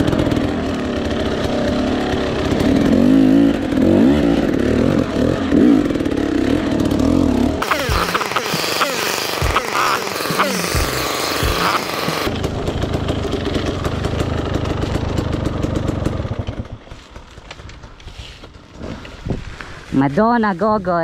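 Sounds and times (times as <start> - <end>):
dirt bike engine revving: 0.0 - 19.2
hissing rush: 7.6 - 12.3.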